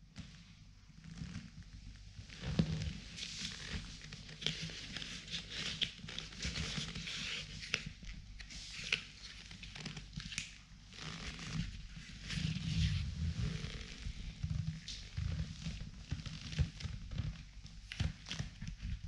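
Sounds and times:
leather rubbing on leather: 10.9s - 14.6s.

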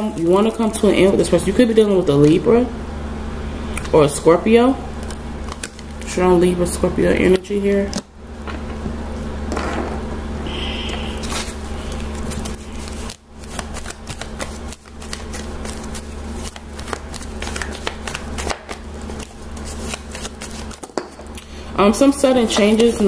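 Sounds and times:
cards being shuffled: 10.9s - 21.2s, 22.4s - 23.0s.

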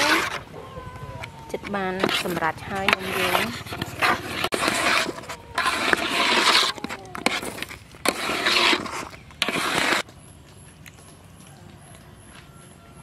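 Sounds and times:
metal ladle scraping a pot: 0.0s - 0.5s, 1.5s - 10.0s.

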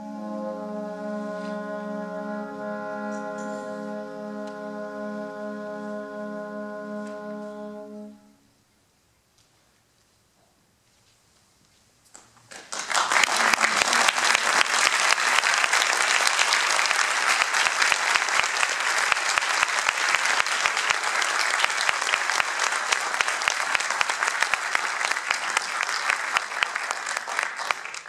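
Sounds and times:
audience applauding: 12.4s - 28.0s.

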